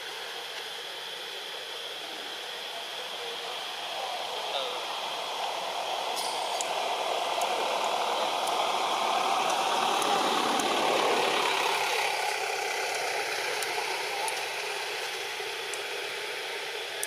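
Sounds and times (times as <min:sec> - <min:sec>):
motor vehicle passing: 0:05.3 - 0:16.3.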